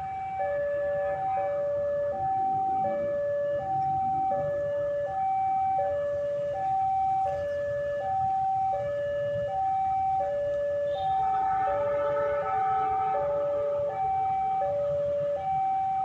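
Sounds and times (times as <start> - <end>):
level crossing two-tone alarm: 0.0 - 16.0
second two-tone alarm: 10.2 - 16.0.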